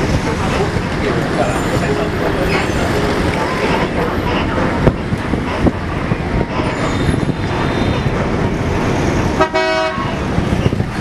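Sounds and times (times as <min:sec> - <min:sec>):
city street traffic: 0:00.0 - 0:11.0
vehicle horn honk: 0:09.4 - 0:10.2.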